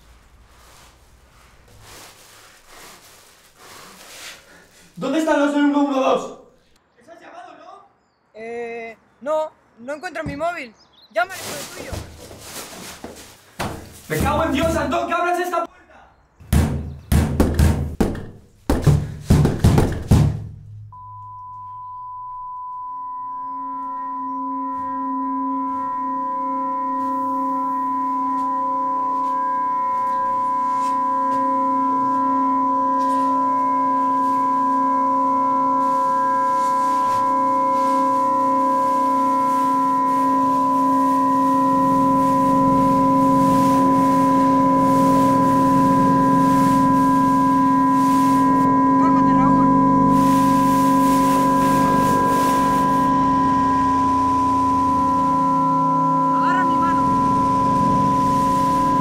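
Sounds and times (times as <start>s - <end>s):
drone of pure tones: 20.9s - 59.0s.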